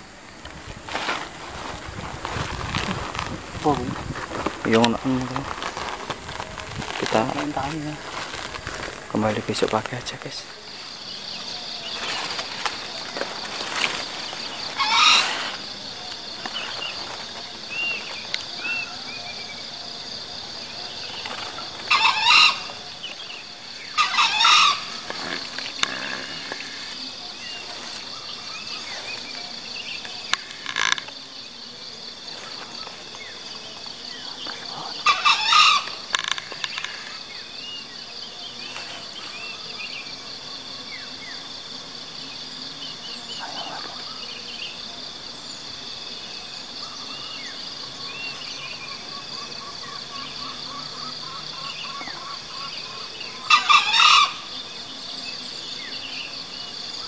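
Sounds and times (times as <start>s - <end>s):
high insect drone: 0.0s - 57.0s
junglefowl crowing: 14.6s - 15.6s, 21.6s - 23.1s, 23.8s - 26.8s, 34.7s - 37.2s, 49.4s - 54.6s
small birds chirping: 32.2s - 41.5s, 42.2s - 44.8s.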